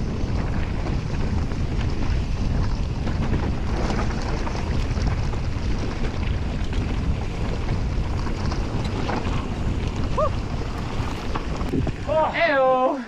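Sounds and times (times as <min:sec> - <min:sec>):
tyres rumbling over dirt and rock: 0:00.0 - 0:12.7
wind on microphone: 0:00.0 - 0:12.8.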